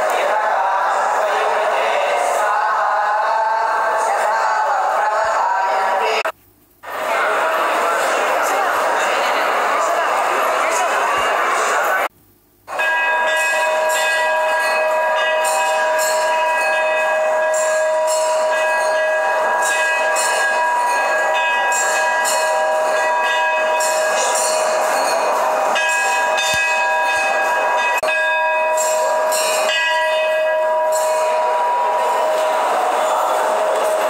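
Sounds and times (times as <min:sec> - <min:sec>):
temple bells clanging: 0:12.7 - 0:34.0.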